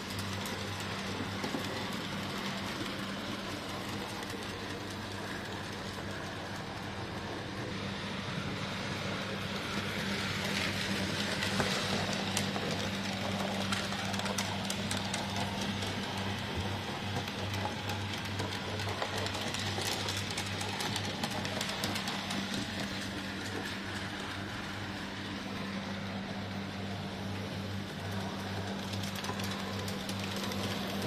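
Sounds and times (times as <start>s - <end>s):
wheels clicking over rail joints: 0.0s - 7.8s, 8.5s - 25.1s, 27.2s - 31.0s.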